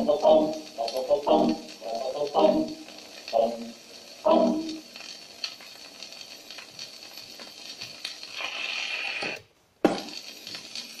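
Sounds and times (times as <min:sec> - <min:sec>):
record surface hiss and crackle: 0:00.0 - 0:11.0
soft repeating record click: 0:00.0 - 0:11.0.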